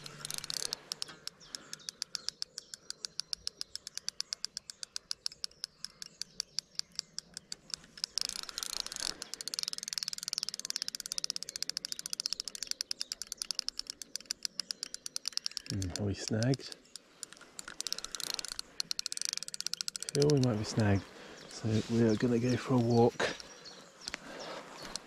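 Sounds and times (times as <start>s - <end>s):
fishing reel clutch clicking: 0.0s - 21.1s.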